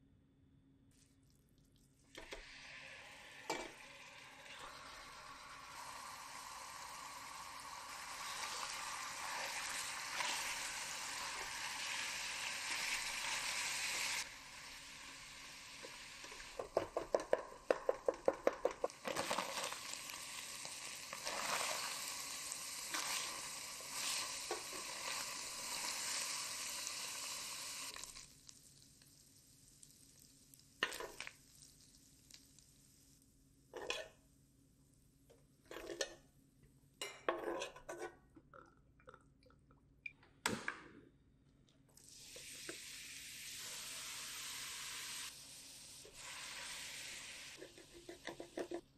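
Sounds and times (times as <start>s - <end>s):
meat sizzling in a pot: 2.1s - 34.1s, 42.0s - 48.9s
knocks and scrapes in a pot: 16.2s - 19.7s, 30.8s - 31.3s, 33.7s - 34.2s, 35.6s - 36.3s, 37.0s - 38.4s, 47.6s - 48.9s
spatula tapping a metal pot: 16.6s - 18.9s.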